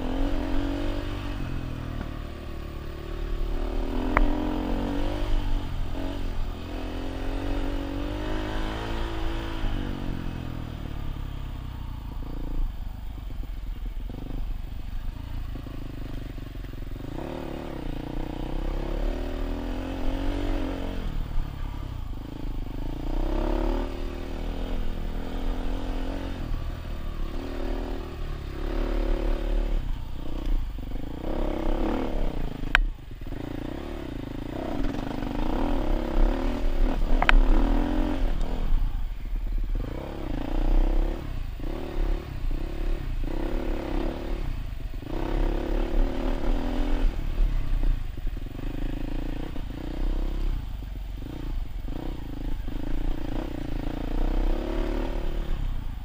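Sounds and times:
dirt bike engine revving: 0:00.0 - 0:11.2, 0:17.0 - 0:56.0
sharp click: 0:04.1 - 0:04.4, 0:37.1 - 0:37.5.

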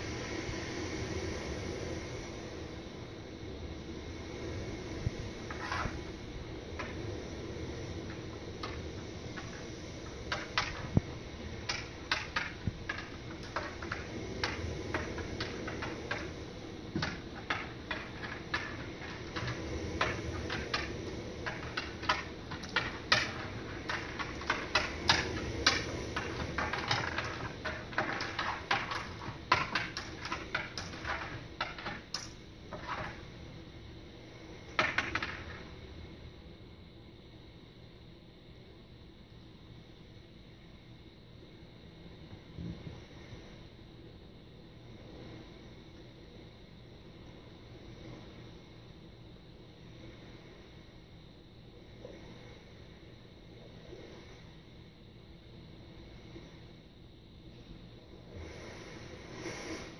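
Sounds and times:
steady low hum: 0:00.0 - 0:59.9
small objects clattering on tabletop: 0:05.4 - 0:06.1, 0:06.7 - 0:33.4, 0:34.6 - 0:35.8.

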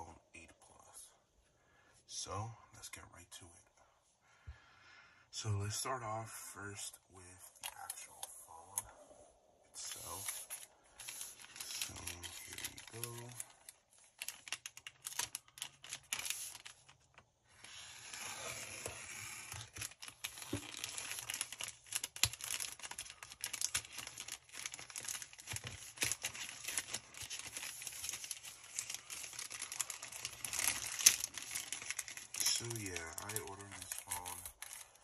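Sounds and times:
plastic mailer crinkling and tearing: 0:09.8 - 0:35.0.

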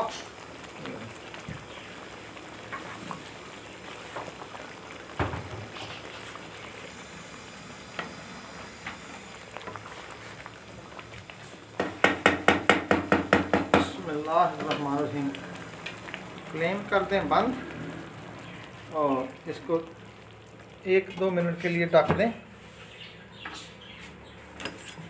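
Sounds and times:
gravy simmering and bubbling: 0:00.0 - 0:25.0
knock: 0:11.8 - 0:13.9.

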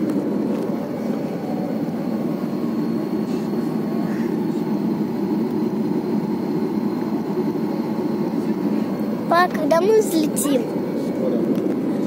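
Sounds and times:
jet engines rumbling: 0:00.0 - 0:12.0
faint high whine: 0:00.4 - 0:12.0.

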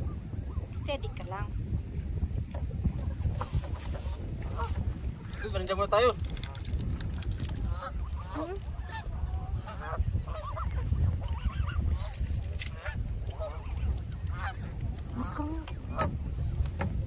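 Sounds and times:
geese honking: 0:07.7 - 0:12.1, 0:12.7 - 0:16.1.

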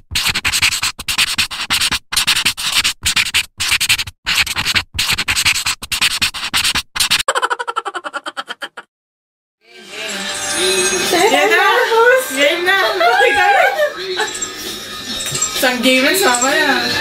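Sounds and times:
pen scribbling on paper: 0:00.0 - 0:07.3.

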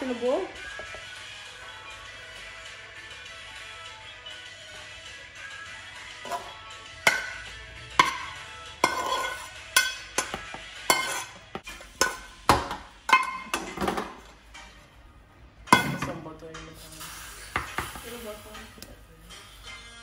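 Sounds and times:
metal utensil clinking on cookware: 0:06.2 - 0:14.3.

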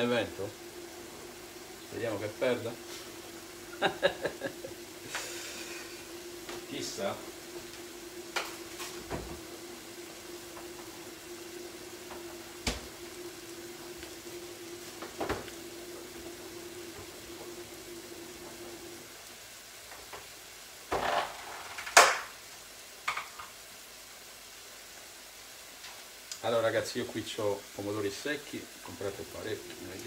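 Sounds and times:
steady low hum: 0:00.0 - 0:19.0
onions sizzling in a frying pan: 0:00.0 - 0:30.0.

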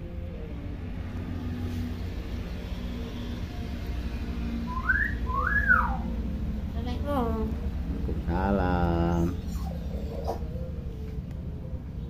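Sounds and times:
low background rumble: 0:00.0 - 0:12.0
bird whistling: 0:04.6 - 0:06.1.

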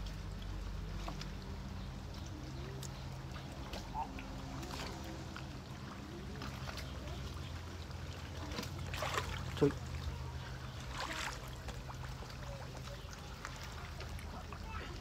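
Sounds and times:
hands squelching in mud and water: 0:00.0 - 0:15.0.

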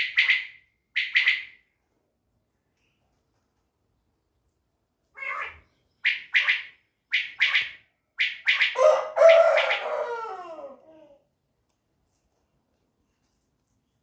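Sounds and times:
quail calling: 0:00.0 - 0:01.6, 0:05.2 - 0:10.5.

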